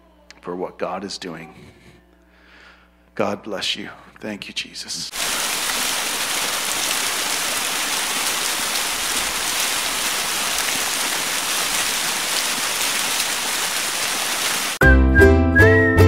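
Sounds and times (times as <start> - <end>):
rain-like hiss: 5.1 - 14.8.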